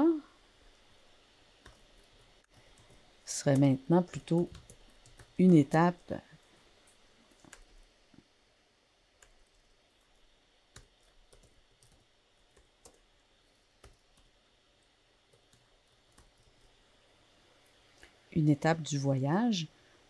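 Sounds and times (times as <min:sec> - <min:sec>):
computer keyboard clicks: 0:04.4 - 0:05.4.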